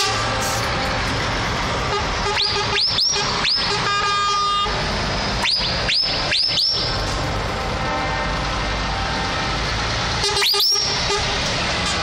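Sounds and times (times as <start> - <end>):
trucks driving past: 0.0 - 12.0.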